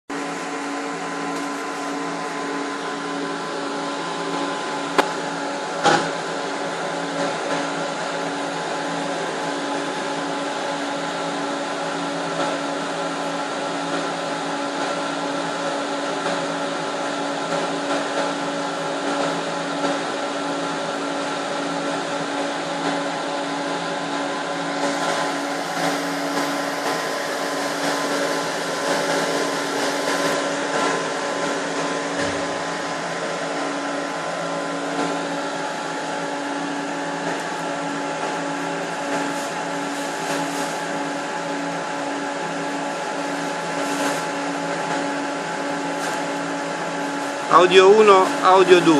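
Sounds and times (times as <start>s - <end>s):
cooling fans whirring: 0.1s - 48.9s
electrical hum tones: 24.3s - 48.9s.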